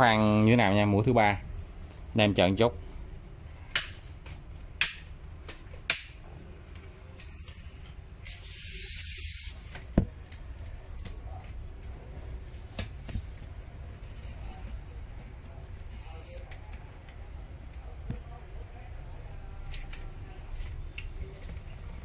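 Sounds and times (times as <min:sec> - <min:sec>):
hiss: 0:07.2 - 0:09.8.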